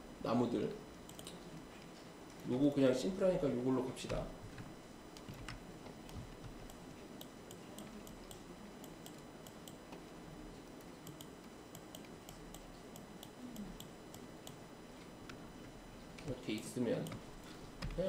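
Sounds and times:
mouse and keyboard clicking: 1.1 - 1.4.

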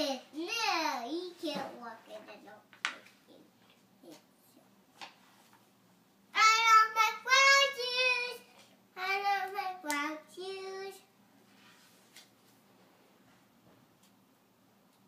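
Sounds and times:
young boy singing: 6.4 - 11.1.

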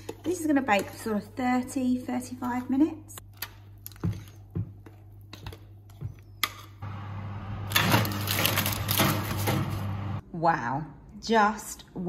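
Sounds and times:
oven whooshing: 6.8 - 10.2.

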